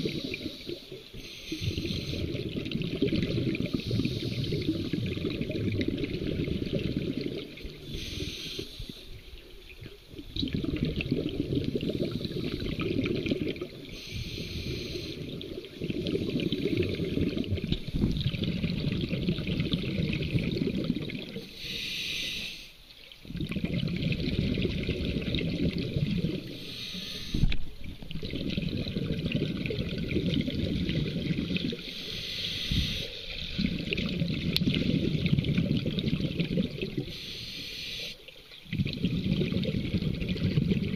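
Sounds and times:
regulator hiss on inhalation: 0.0 - 2.4, 3.6 - 5.0, 7.8 - 9.2, 13.9 - 15.3, 21.4 - 22.8, 26.5 - 27.6, 31.8 - 33.4, 37.0 - 38.2
gurgling bubble bursts underwater: 0.0 - 7.9, 9.7 - 14.0, 14.7 - 21.5, 23.2 - 26.6, 27.7 - 31.9, 33.2 - 37.1, 38.6 - 40.9.

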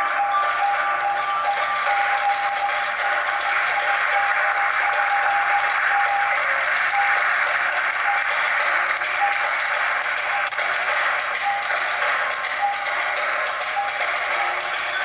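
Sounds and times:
dance music: 0.0 - 15.0
audience applauding: 0.4 - 15.0.

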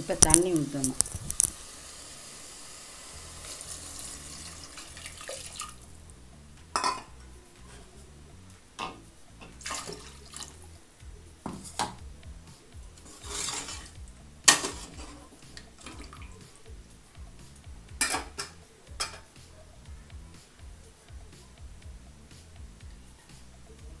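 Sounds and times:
gravy sloshing: 3.4 - 6.1, 9.5 - 10.7, 13.0 - 16.6
metal spoon clinking on pot: 6.8 - 7.1.

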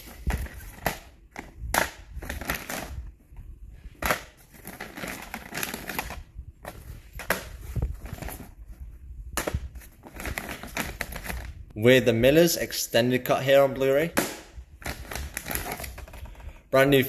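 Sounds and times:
plastic cases clacking: 0.0 - 3.0, 4.0 - 8.6, 9.4 - 11.5.

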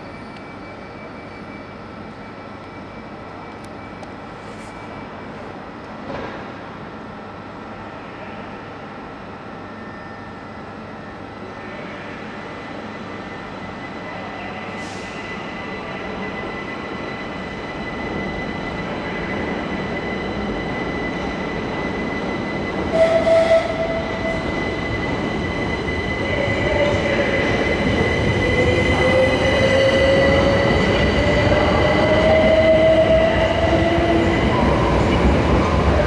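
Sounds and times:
rumble of train wheels: 0.0 - 36.0
steady high tone: 15.3 - 36.0.

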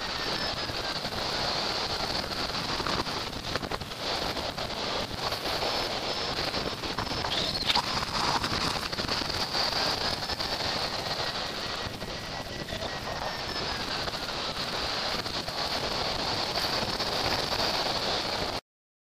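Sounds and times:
wind buffeting microphone: 0.0 - 18.6.

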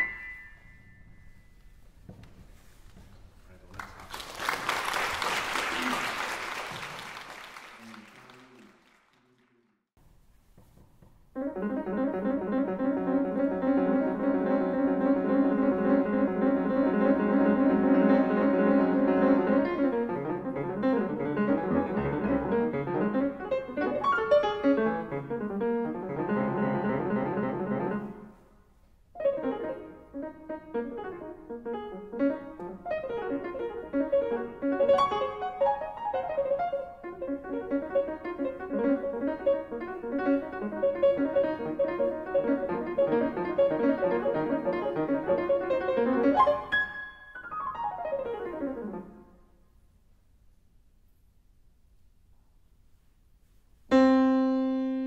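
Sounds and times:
grand piano playing: 0.0 - 1.8, 11.3 - 28.4, 29.2 - 49.4, 53.9 - 55.0.

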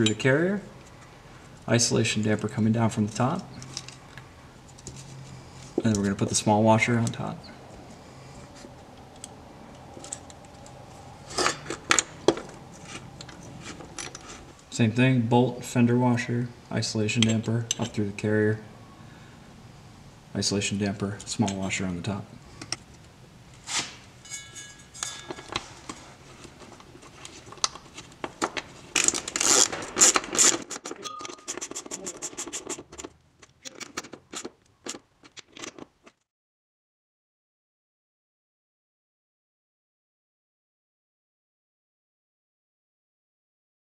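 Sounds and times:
bolts and washers scraping and clinking: 3.1 - 7.3, 8.4 - 14.7, 17.1 - 18.0, 23.7 - 36.2
small metal hardware clinking: 11.4 - 14.4, 24.2 - 26.2, 30.8 - 31.8.

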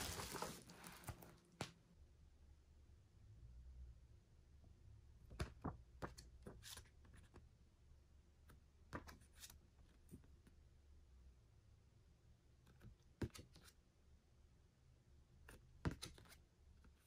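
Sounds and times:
packaging rustle: 0.0 - 1.4.

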